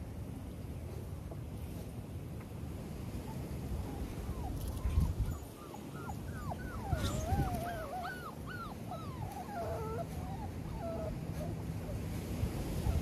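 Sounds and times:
puppies whining and yipping: 3.2 - 13.0.

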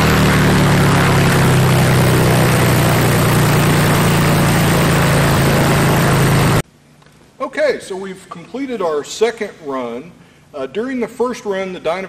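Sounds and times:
aircraft piston engine and propeller: 0.0 - 6.6.

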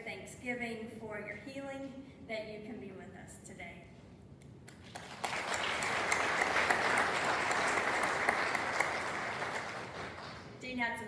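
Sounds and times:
congregation applauding: 4.7 - 10.6.

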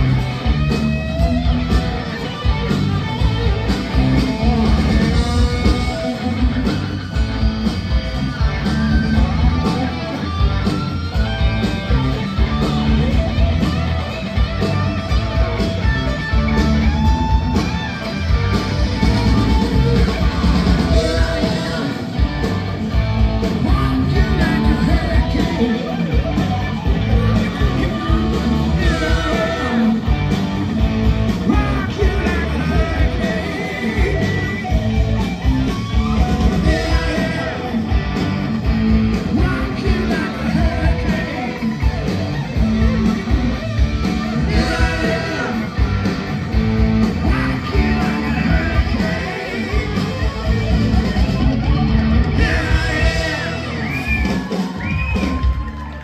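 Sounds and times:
live rock band playing: 0.0 - 56.0
lead singer singing: 20.8 - 22.4, 23.5 - 26.2, 27.1 - 30.2, 31.4 - 34.9, 36.5 - 38.0, 39.3 - 41.8, 44.4 - 46.0, 47.2 - 50.4, 52.2 - 54.4.

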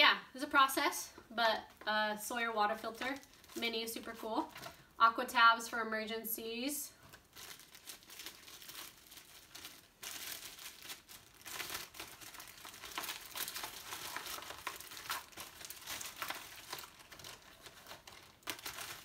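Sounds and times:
plastic bags crinkling: 2.6 - 4.9, 6.9 - 19.0.

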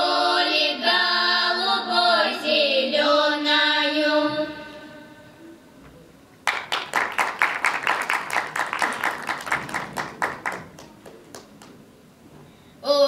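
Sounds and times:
small audience applause: 6.4 - 11.8.

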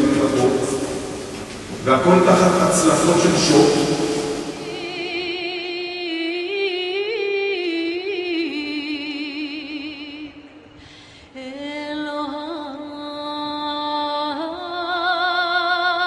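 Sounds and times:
woman singing with vibrato: 4.4 - 10.6, 11.4 - 16.0.

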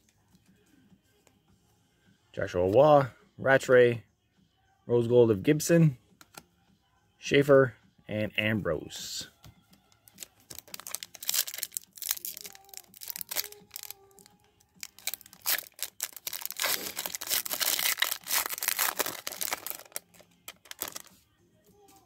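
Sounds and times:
foil wrapper crinkling and tearing: 10.1 - 21.1.

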